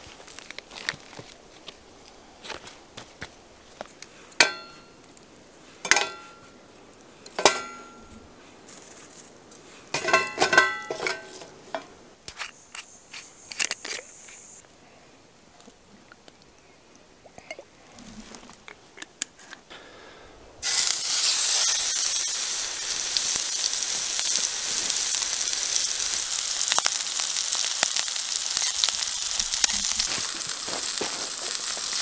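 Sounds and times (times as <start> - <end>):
metal cookware clanking: 4.4 - 4.9, 5.8 - 6.4, 7.4 - 8.1, 9.9 - 11.9.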